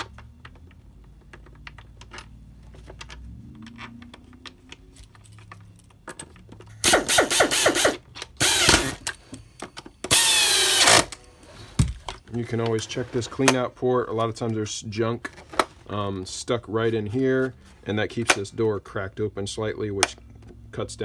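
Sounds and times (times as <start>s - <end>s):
screwdriver whirring: 6.8s - 9.1s, 10.0s - 11.2s.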